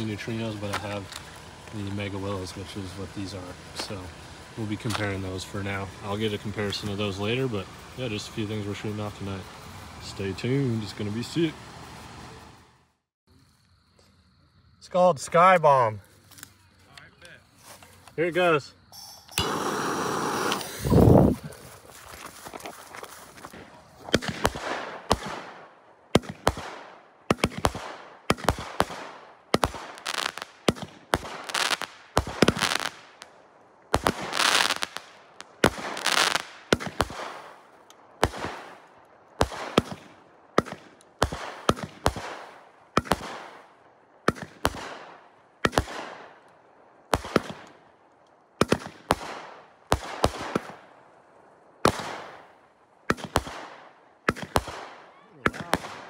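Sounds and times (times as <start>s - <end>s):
firework cake shots with sharp bangs: 19.0s - 21.2s, 23.5s - 33.3s, 33.9s - 46.4s, 47.1s - 47.8s, 48.6s - 50.9s, 51.8s - 56.0s.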